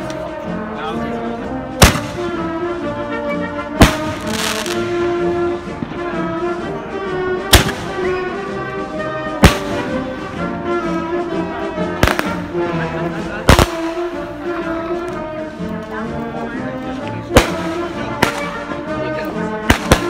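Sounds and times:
brass band music: 0.0 - 20.0
firework bangs: 1.8 - 2.4, 3.8 - 5.1, 7.5 - 8.2, 9.4 - 10.4, 12.0 - 12.5, 13.5 - 14.2, 17.3 - 18.6, 19.6 - 20.0.

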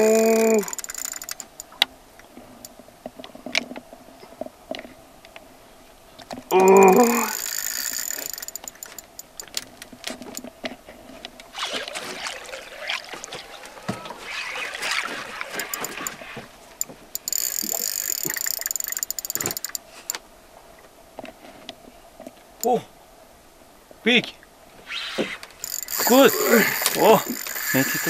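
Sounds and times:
fishing reel drag buzzing: 0.0 - 1.6, 6.6 - 9.2, 11.6 - 16.5, 17.2 - 19.8, 24.9 - 28.0
reel clicks: 0.0 - 1.9, 6.2 - 10.5, 11.3 - 20.2, 25.6 - 28.0.

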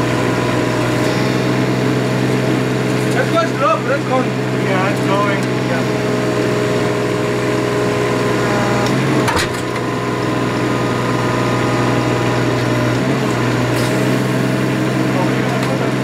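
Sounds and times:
hydraulic machinery humming: 0.0 - 16.0.

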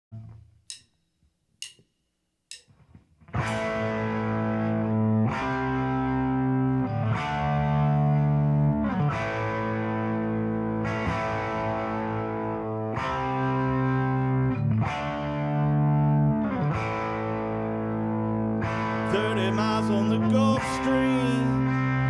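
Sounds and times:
bass guitar: 0.1 - 0.9, 2.8 - 22.0
sharp count-in clicks: 0.6 - 2.8
distorted electric guitar chords: 2.7 - 22.0.

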